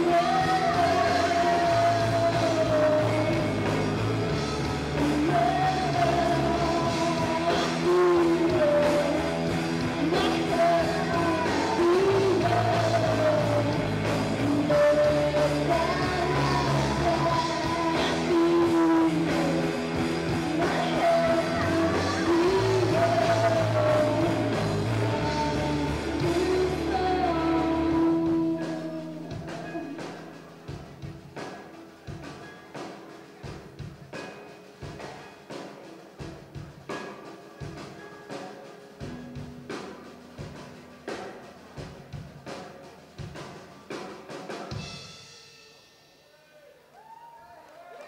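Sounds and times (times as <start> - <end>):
woman singing: 0.0 - 30.4
electric guitar: 0.0 - 44.9
rock band playing live: 0.0 - 46.6.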